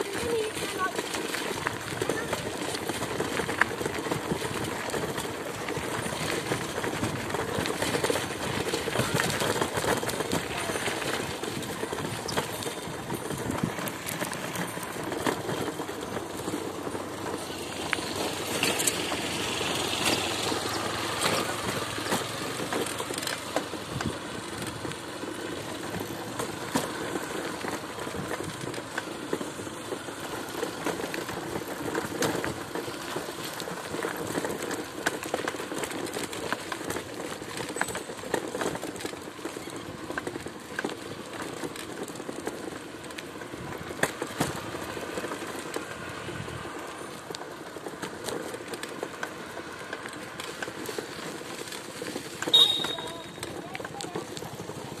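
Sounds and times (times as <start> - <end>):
tyre and wind noise: 0.0 - 55.0
vehicle rattles and knocks: 0.0 - 55.0.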